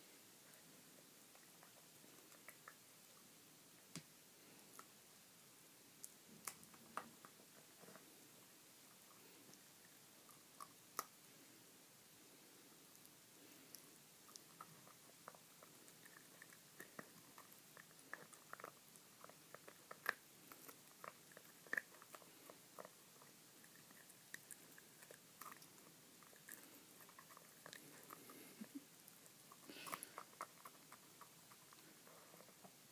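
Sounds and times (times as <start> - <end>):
dog chewing and biting: 14.3 - 28.5, 29.1 - 32.7.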